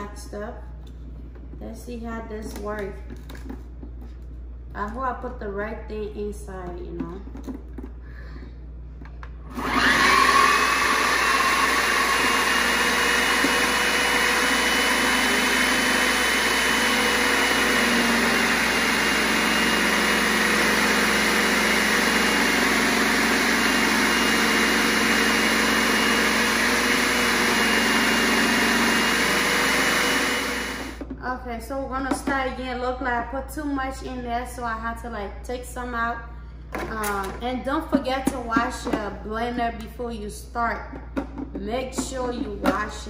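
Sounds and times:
food processor motor whine: 9.5s - 31.0s.

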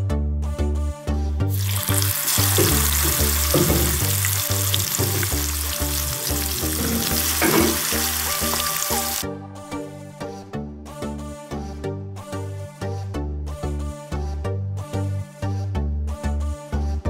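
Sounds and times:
fish sizzling in hot oil: 1.5s - 9.2s.

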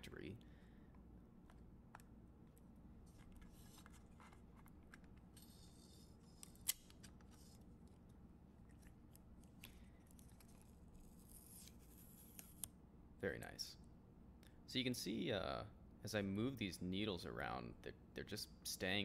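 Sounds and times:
plastic rubbing and scraping: 3.0s - 7.7s.

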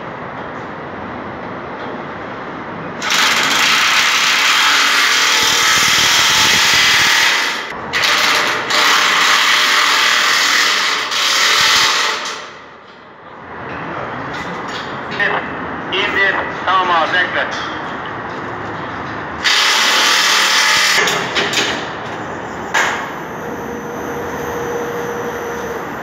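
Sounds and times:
power tool driving bolts: 3.0s - 12.6s, 19.4s - 21.9s.

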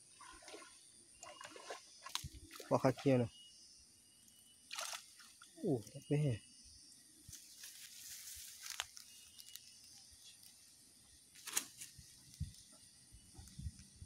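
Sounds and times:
leaves crackling underfoot: 7.3s - 10.6s, 11.3s - 12.7s
twig snapping: 8.6s - 9.7s, 11.4s - 11.9s.

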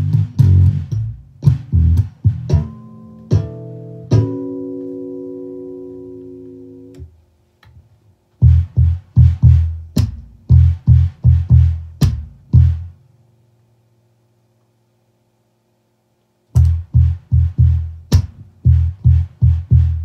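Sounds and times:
electric bass guitar notes: 0.0s - 7.1s, 8.4s - 13.0s, 16.6s - 20.0s.

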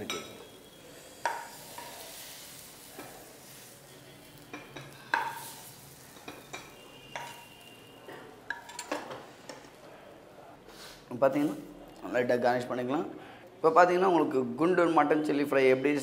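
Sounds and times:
faint sizzle: 0.0s - 13.6s
metal ladle clinking on pan: 6.1s - 9.7s.

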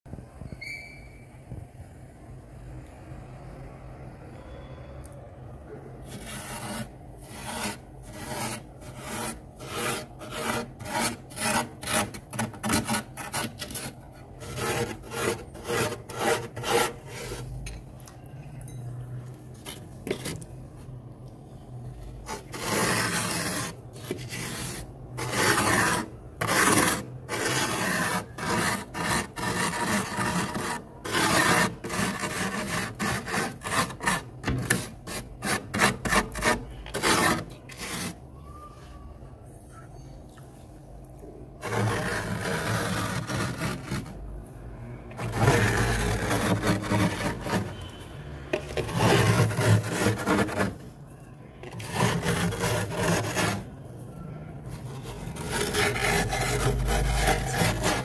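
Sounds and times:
fingers scraping frost: 6.0s - 17.5s, 22.2s - 38.2s, 41.6s - 44.3s, 45.1s - 48.0s, 48.6s - 50.8s, 51.6s - 53.7s, 54.8s - 58.0s.

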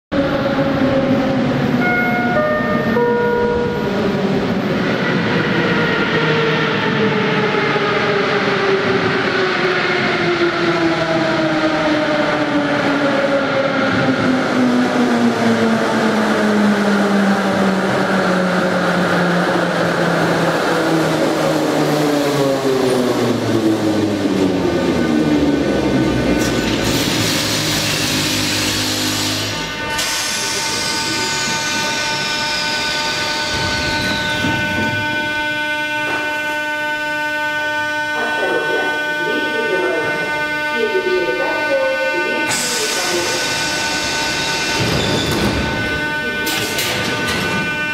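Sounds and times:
wheels rumbling on rail: 0.1s - 47.9s.

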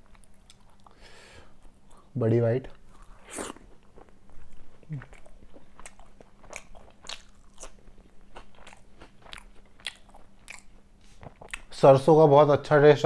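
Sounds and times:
wet chewing and mouth smacks: 0.0s - 1.0s, 2.8s - 11.7s.

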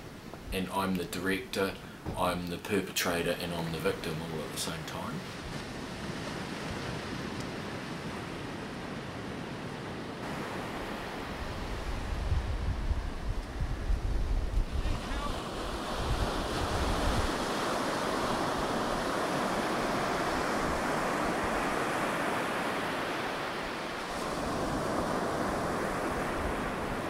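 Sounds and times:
ocean surf breaking on beach: 3.0s - 27.0s
wind buffeting microphone: 5.4s - 22.4s.

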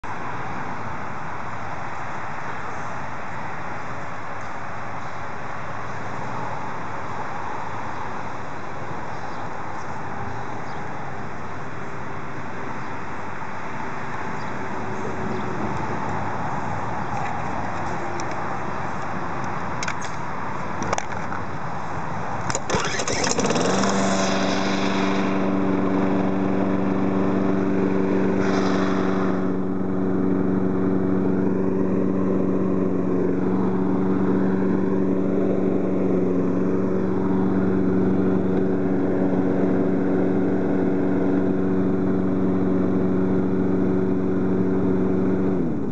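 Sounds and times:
lawn mower engine running: 13.3s - 45.9s.

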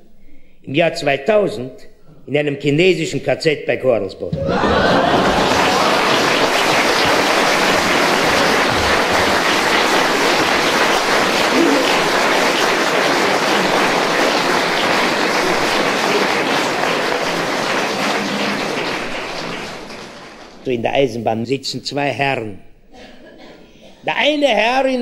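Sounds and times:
audience applause: 4.4s - 20.7s.

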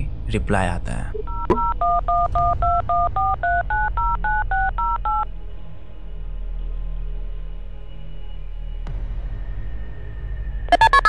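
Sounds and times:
touch-tone dialing beeps: 1.2s - 5.3s.

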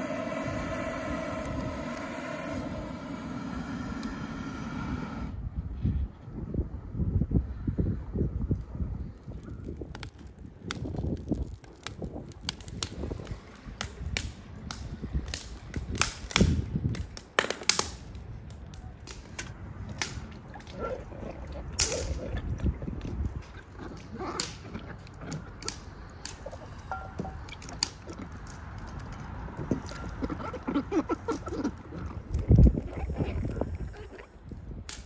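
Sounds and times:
wood fire crackling and popping: 8.4s - 33.7s, 34.3s - 35.0s
small water splashes: 19.9s - 34.4s.

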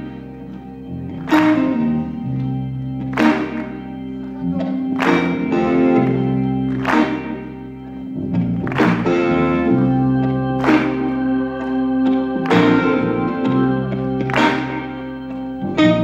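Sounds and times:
rock band playing slow piece: 0.0s - 16.0s.

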